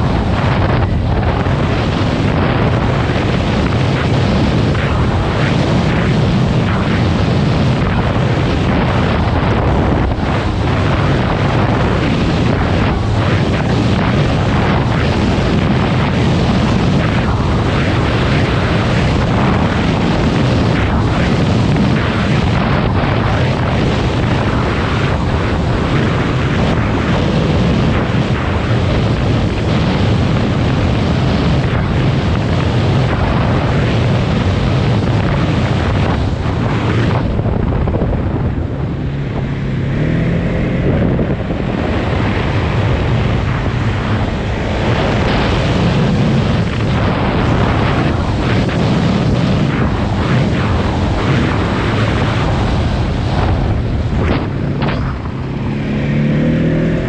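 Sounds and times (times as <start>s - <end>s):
wind noise on microphone: 0.0s - 57.0s
atv engine running: 35.4s - 57.0s.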